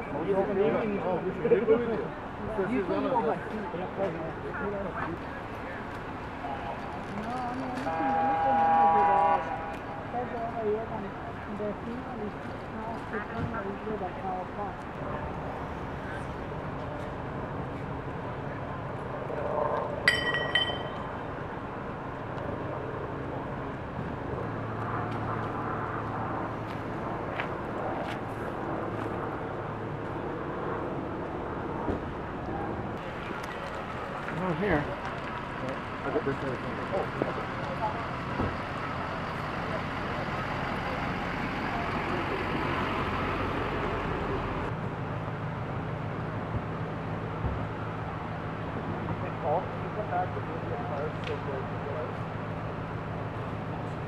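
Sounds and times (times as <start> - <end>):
emergency vehicles idling: 0.0 - 54.0
ambulance driving past: 0.1 - 20.2, 22.8 - 54.0
metal clinks: 20.1 - 21.2.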